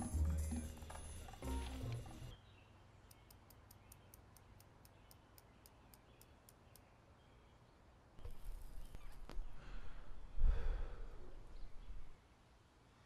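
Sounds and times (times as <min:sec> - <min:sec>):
music: 0:00.0 - 0:02.3.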